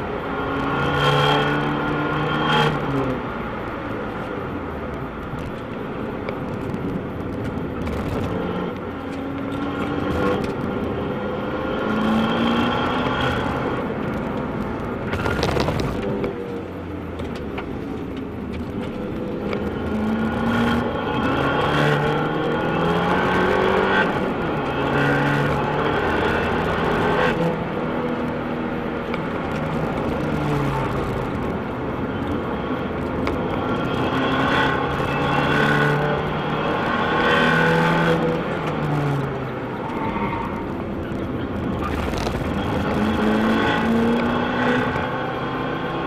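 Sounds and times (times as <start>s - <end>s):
car engine revving through gears: 0.0s - 3.2s, 6.3s - 46.0s.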